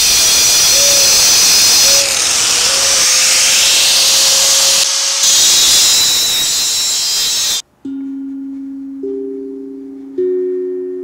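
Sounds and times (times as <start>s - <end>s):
angle grinder grinding steel: 0.0s - 7.6s.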